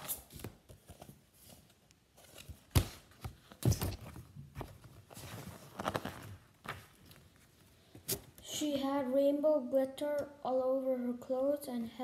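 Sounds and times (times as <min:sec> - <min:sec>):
book pages turning: 0:00.0 - 0:08.4.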